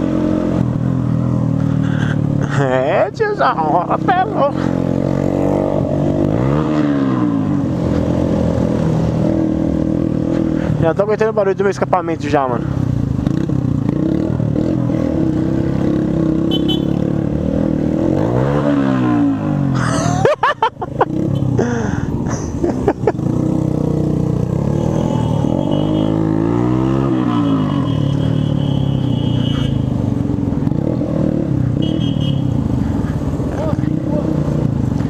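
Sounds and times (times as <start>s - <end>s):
motorcycle engine with loud exhaust: 0.0s - 35.0s.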